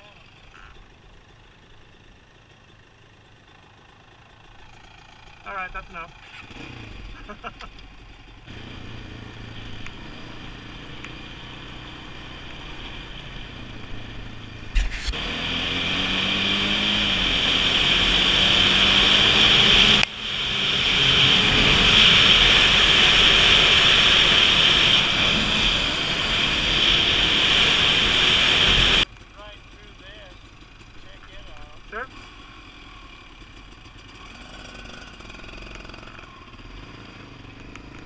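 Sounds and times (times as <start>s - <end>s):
off-road vehicle engine: 0.0s - 38.0s
rushing wind noise: 15.8s - 29.0s.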